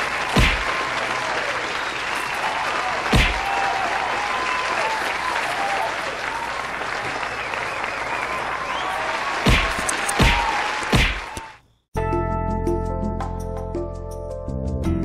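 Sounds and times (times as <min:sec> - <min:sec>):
crowd applauding: 0:00.0 - 0:11.6
punch impact: 0:00.4 - 0:00.6, 0:03.1 - 0:03.4, 0:09.5 - 0:11.3.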